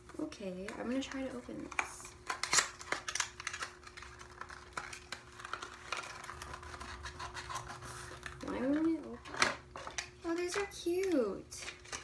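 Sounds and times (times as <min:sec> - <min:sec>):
cardboard box packaging crinkling: 0:00.9 - 0:10.6.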